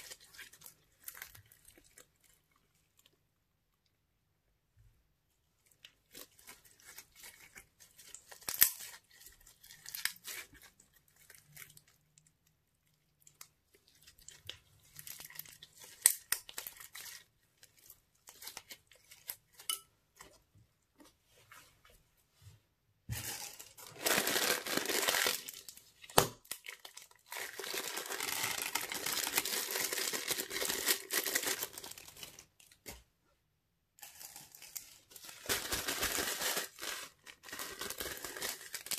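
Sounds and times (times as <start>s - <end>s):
slime rustling: 0.0s - 4.2s, 5.2s - 33.2s.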